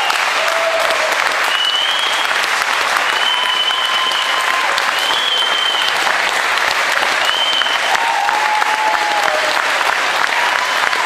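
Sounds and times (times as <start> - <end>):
crowd applauding: 0.0 - 11.0
high whistles: 1.4 - 6.1, 7.2 - 7.9.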